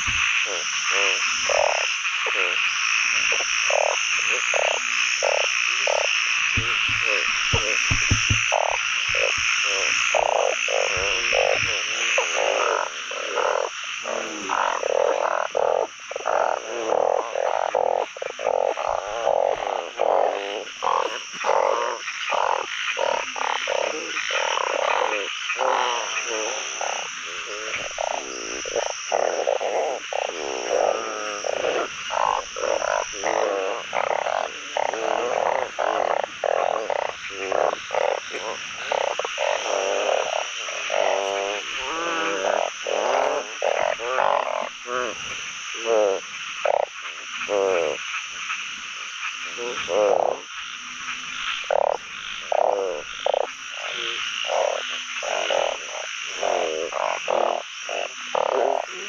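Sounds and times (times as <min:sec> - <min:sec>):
frogs croaking: 0:00.0 - 0:59.0
high steady buzzing: 0:05.9 - 0:11.8.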